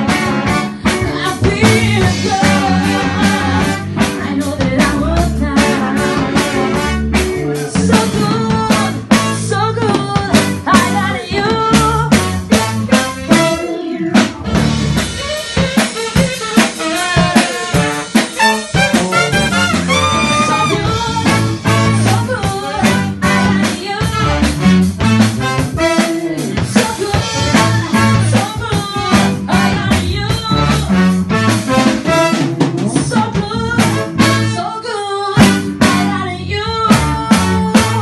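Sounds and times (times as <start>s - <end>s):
horn section: 0.0s - 4.2s, 5.5s - 9.8s, 11.9s - 38.0s
woman singing: 0.0s - 7.0s, 7.7s - 14.3s, 20.6s - 24.5s, 25.8s - 31.0s, 32.8s - 38.0s
live band playing: 0.0s - 38.0s.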